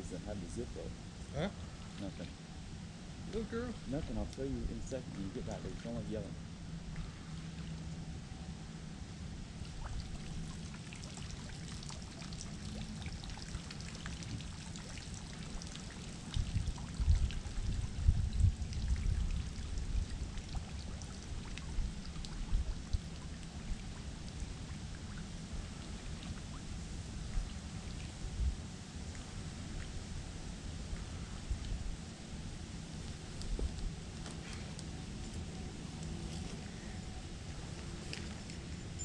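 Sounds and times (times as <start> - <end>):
water trickling and dripping: 3.2 - 6.2, 9.4 - 39.0
small splashes: 9.6 - 28.3.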